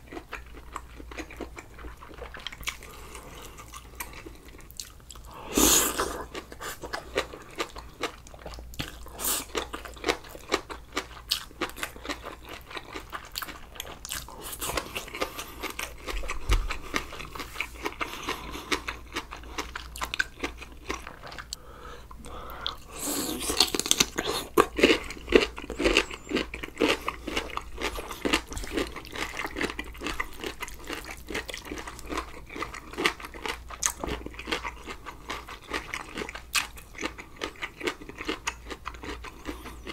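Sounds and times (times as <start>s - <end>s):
person chewing and crunching food: 0.0s - 39.9s.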